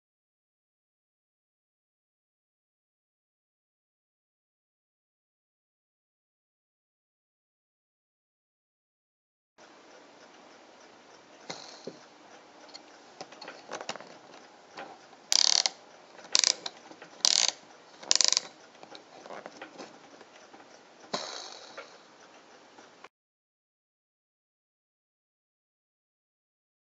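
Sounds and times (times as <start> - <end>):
fishing reel ratchet clicking: 15.3 - 18.6.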